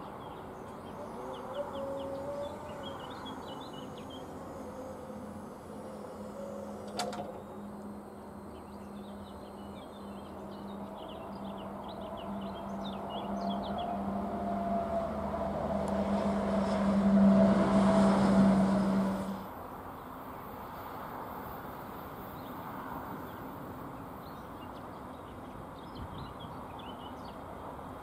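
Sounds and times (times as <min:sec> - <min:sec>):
road traffic engine hum: 0:00.0 - 0:28.0
outdoor rumble: 0:00.6 - 0:09.3.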